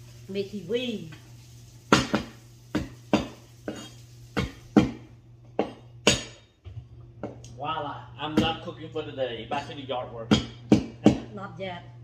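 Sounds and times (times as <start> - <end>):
cleaver chopping on wooden board: 10.3 - 11.3.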